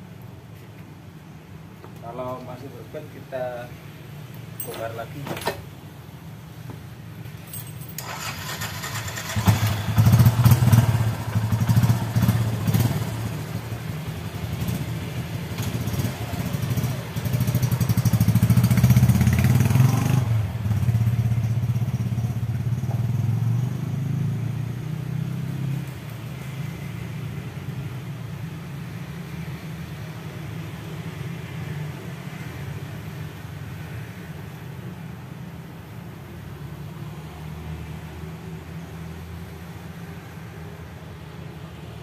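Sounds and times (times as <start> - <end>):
motorcycle engine revving: 8.0 - 25.9.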